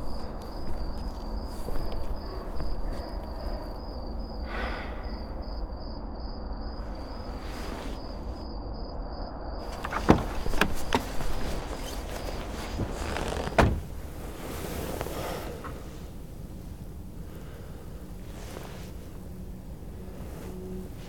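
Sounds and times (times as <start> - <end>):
car door clicks and knocks: 9.7 - 14.0
faint pulsing high tone: 18.9 - 21.0.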